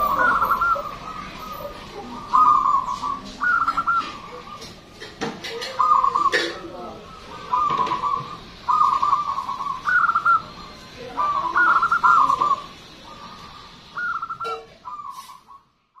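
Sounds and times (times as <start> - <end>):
dove stuttering coo: 0.0 - 15.6.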